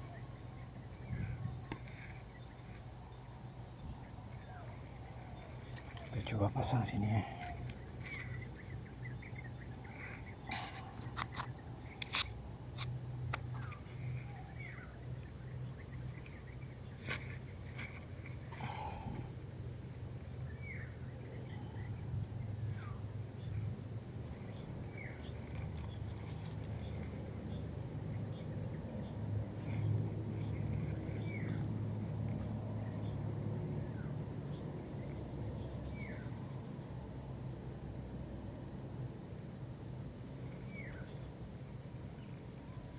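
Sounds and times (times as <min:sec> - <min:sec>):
bird chirps: 0:00.0 - 0:19.7
steady low hum: 0:00.0 - 0:42.9.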